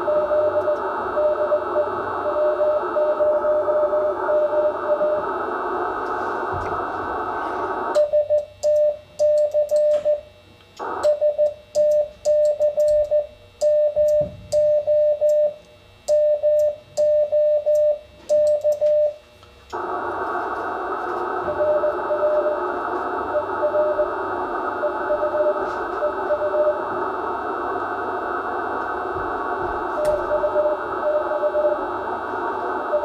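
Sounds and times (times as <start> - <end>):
morse code sidetone: 0.0 - 5.2, 8.0 - 10.2, 11.0 - 19.2, 21.4 - 26.9, 29.9 - 31.8
incoming morse signal: 0.0 - 5.4, 10.8 - 19.2, 19.8 - 27.8, 28.6 - 32.1, 32.8 - 33.0
radio band hiss: 0.0 - 8.0, 10.8 - 11.2, 19.6 - 33.0.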